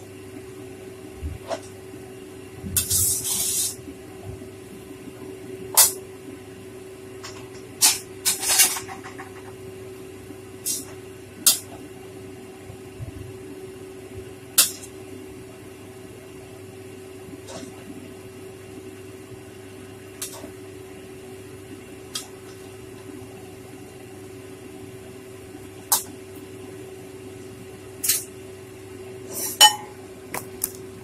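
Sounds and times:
steady hum: 0.0s - 31.0s
spatula scraping a wok: 2.8s - 3.8s.

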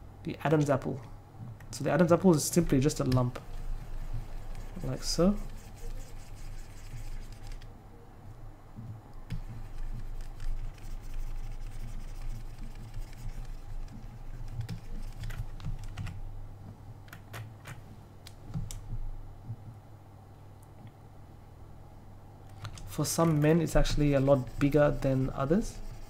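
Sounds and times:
low steady hum: 0.0s - 26.0s
computer keys clicking: 7.2s - 7.7s, 12.2s - 16.2s.

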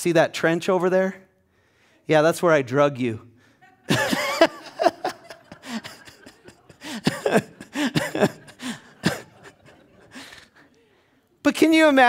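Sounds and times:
man laughing: 3.7s - 10.6s.

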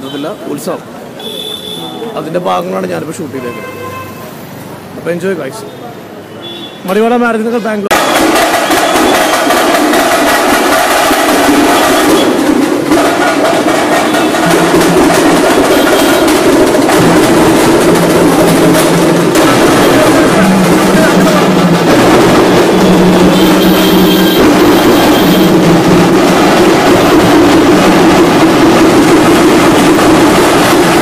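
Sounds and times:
drums beating: 6.8s - 31.0s
crowd voices: 11.6s - 31.0s.

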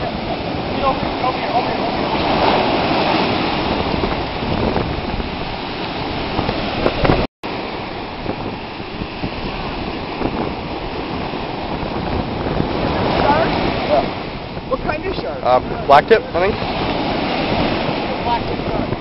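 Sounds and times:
ocean surf washing on shore: 0.0s - 19.0s
wind buffeting microphone: 0.0s - 19.0s.

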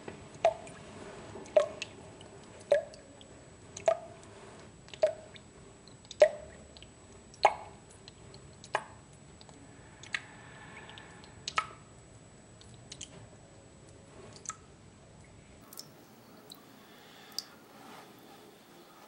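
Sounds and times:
water drops plopping in sink: 6.1s - 6.5s, 7.4s - 7.8s.

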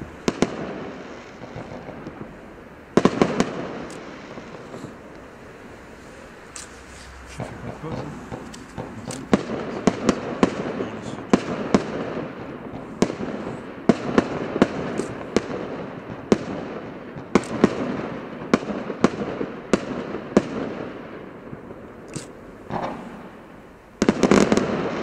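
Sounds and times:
firework bangs: 0.0s - 25.0s
firework hiss: 0.0s - 25.0s.

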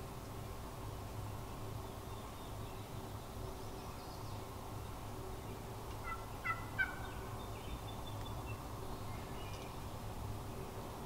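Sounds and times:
turkey yelping: 6.0s - 7.2s.

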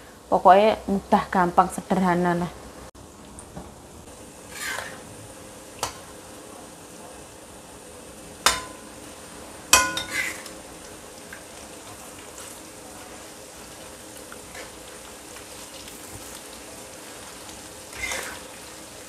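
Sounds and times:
shrimp sizzling in oil: 4.1s - 19.0s
metal spatula scraping a wok: 4.5s - 5.0s, 9.9s - 10.5s, 17.9s - 18.5s
spatula clanking against wok: 8.5s - 8.9s, 9.7s - 10.5s.

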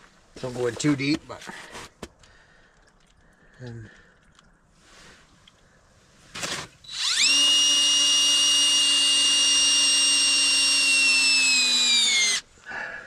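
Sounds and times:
drill click: 6.4s - 12.4s
cordless drill motor whining: 6.4s - 12.5s.

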